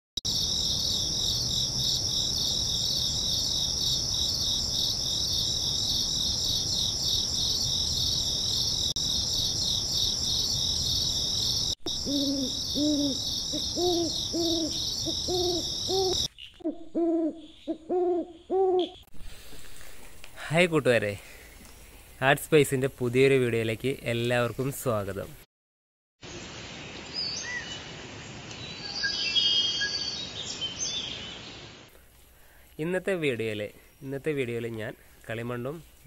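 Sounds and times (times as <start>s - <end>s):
crickets chirring: 0.3s - 16.4s
owl hooting: 11.9s - 19.0s.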